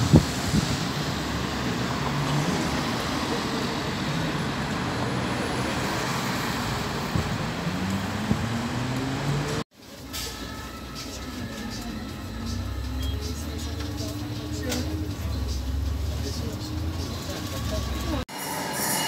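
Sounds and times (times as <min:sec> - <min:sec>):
cars driving past: 0:00.0 - 0:09.6
vehicle engine accelerating: 0:00.0 - 0:09.6, 0:11.3 - 0:18.2
bus pulling away: 0:00.0 - 0:18.2.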